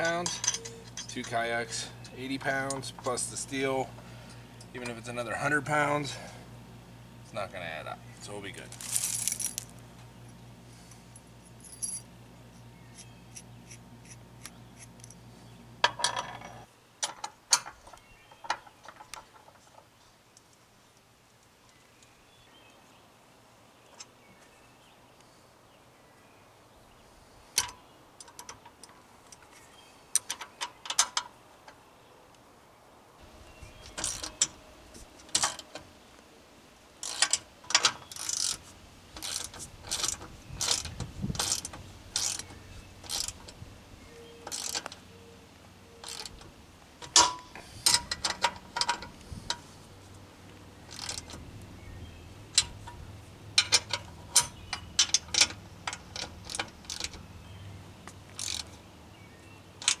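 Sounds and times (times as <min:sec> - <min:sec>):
socket ratchet clicking: 0:58.3 - 0:58.7.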